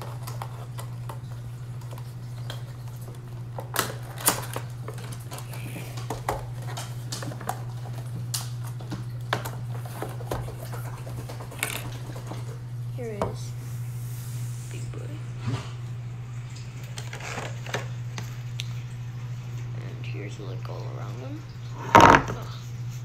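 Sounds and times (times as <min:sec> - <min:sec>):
plastic crinkling and clicking: 0:00.0 - 0:12.6, 0:16.5 - 0:18.8
steady low hum: 0:00.0 - 0:23.0.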